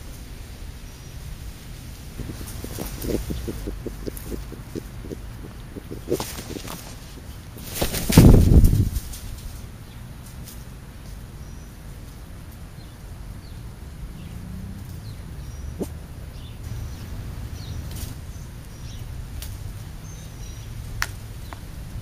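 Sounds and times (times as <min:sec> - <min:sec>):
steady low rumble: 0:01.7 - 0:09.2
small birds chirping: 0:01.9 - 0:09.2, 0:12.7 - 0:21.7
sharp clicks: 0:02.2 - 0:08.2.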